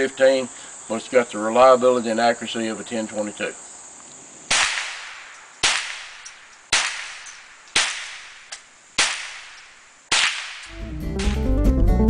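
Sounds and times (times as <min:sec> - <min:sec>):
rifle shots echoing: 0:04.5 - 0:11.3.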